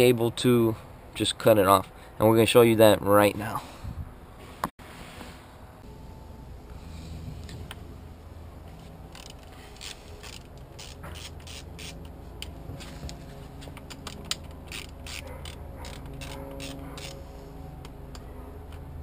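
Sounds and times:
socket ratchet clicking: 9.1 - 12.1, 13.8 - 17.2.

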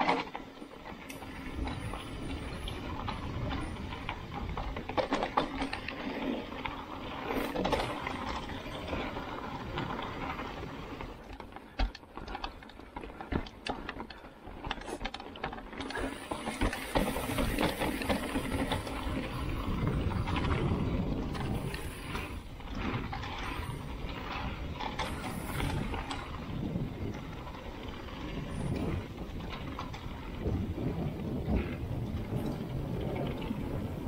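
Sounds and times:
bike frame and chain rattling: 0.0 - 34.0
bike tyres rolling on dirt: 0.0 - 34.0.

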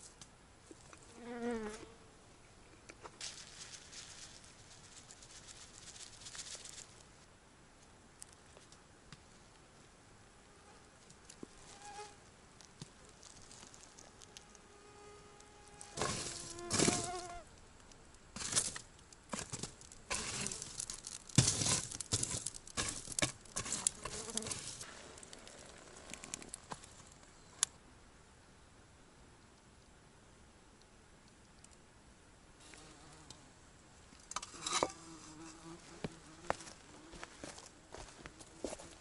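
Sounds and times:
flies buzzing: 1.1 - 2.0, 13.7 - 17.5, 23.8 - 26.9.

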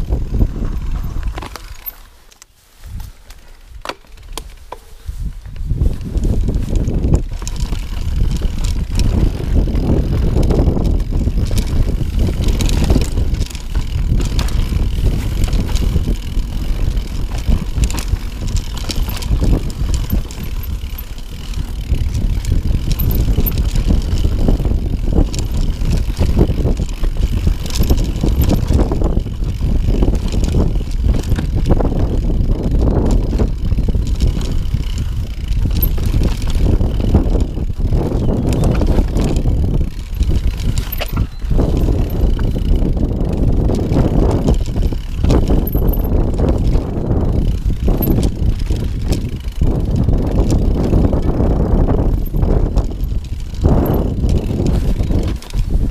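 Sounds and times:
wind on microphone: 0.0 - 1.9, 2.7 - 55.9
bike rattling and knocking: 0.0 - 55.9.

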